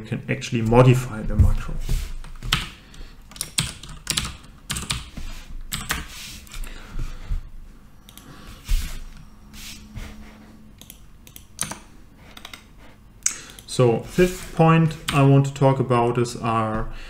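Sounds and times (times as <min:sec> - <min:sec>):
computer keyboard clicks: 0:03.3 - 0:05.1, 0:10.8 - 0:12.7.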